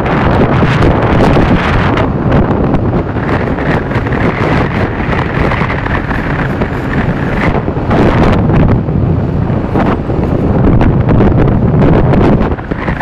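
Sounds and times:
scooter engine at high revs: 0.0 - 8.6
wind buffeting microphone: 0.0 - 13.0.

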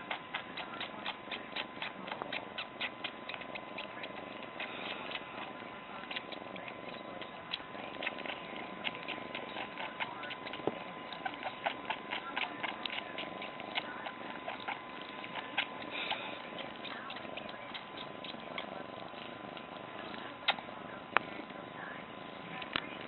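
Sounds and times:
cat wet sucking clicks: 0.0 - 21.6.

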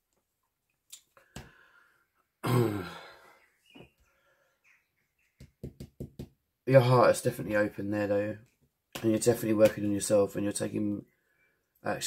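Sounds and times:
woman sighing: 2.4 - 3.3
cards tapping on wooden desk: 5.4 - 6.4.

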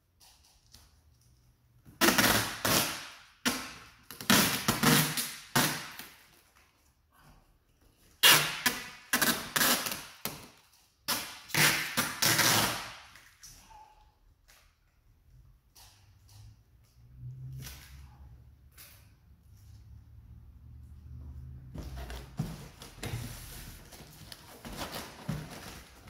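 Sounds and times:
packing tape ripping off roll: 1.9 - 6.6, 8.1 - 13.5.

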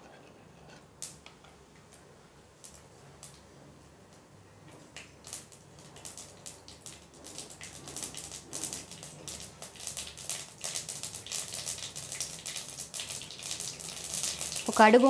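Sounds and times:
seeds spluttering in hot oil: 4.8 - 15.0.

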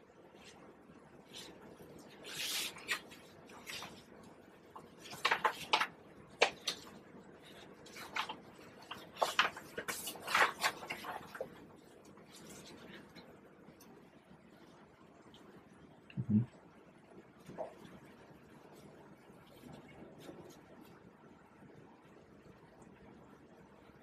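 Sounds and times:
brush scratching across paper: 1.3 - 4.0.

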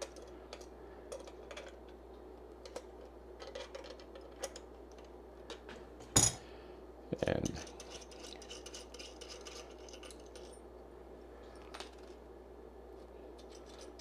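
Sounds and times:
pliers clattering onto bench mat: 6.0 - 6.4.

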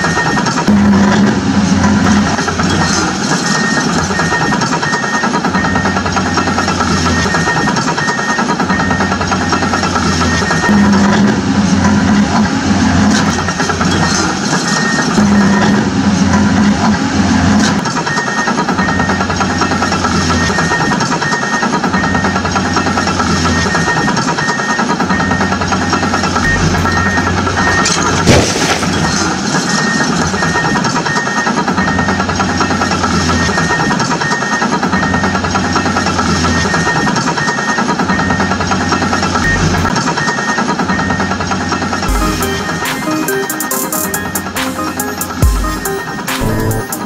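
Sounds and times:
heavy engine idling: 0.0 - 47.0
short high beep: 26.4 - 29.2, 42.1 - 47.0
toy truck crashing over: 26.4 - 29.9.

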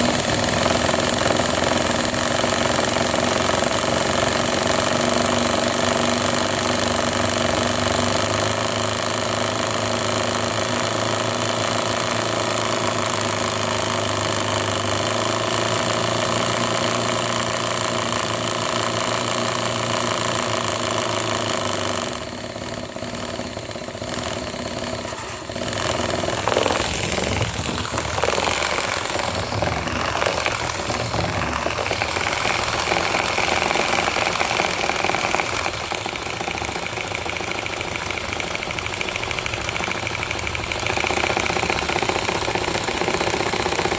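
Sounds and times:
toy motor humming: 24.9 - 43.9.

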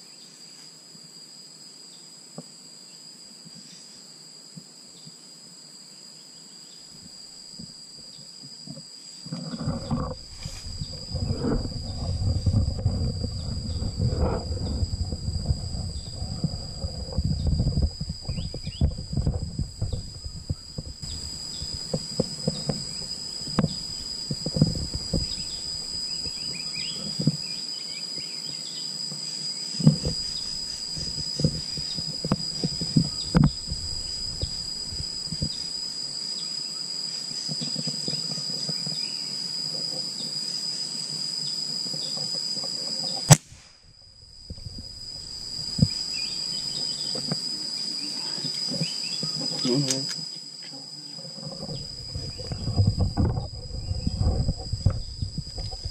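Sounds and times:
insects buzzing: 0.0 - 55.9
air rifle shot crack: 43.3 - 43.8.

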